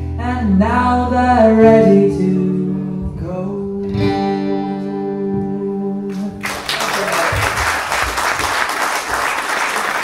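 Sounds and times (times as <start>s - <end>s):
audience applauding: 6.4s - 10.0s.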